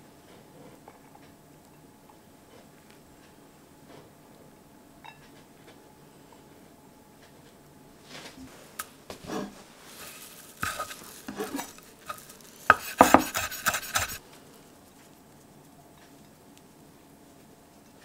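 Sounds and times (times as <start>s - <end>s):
spatula scraping metal pan: 9.2s - 14.2s.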